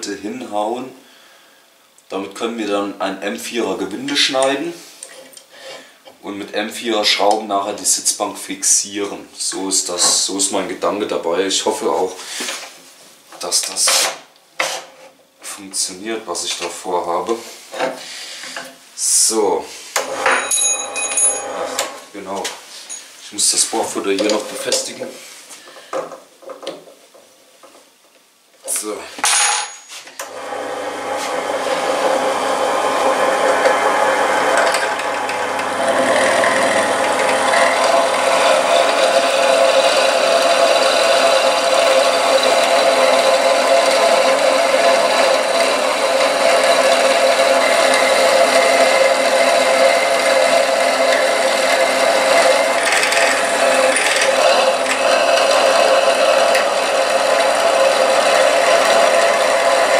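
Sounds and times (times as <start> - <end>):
drill bit cutting metal: 20.0 - 22.0, 30.3 - 59.9
drill press motor whine: 20.0 - 22.0, 30.2 - 59.9.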